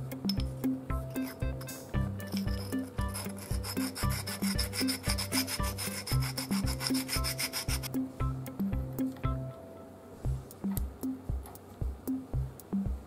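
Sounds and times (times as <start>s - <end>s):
background music with bass: 0.0s - 9.6s, 10.2s - 13.0s
stone scraping on steel: 2.4s - 7.9s.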